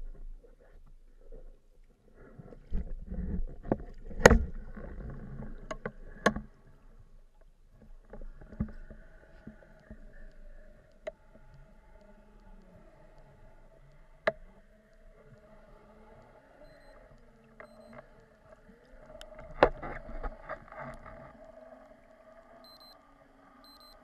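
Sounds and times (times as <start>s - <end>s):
faint steady hum with tones: 0.0s - 24.0s
muffled underwater rumbling: 0.0s - 24.0s
clicks: 16.2s - 21.1s.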